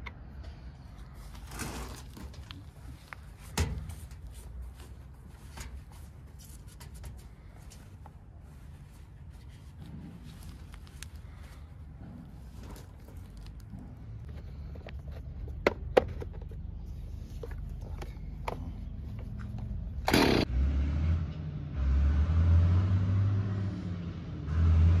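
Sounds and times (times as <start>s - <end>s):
chainsaw pull-started and running: 20.1s - 20.5s.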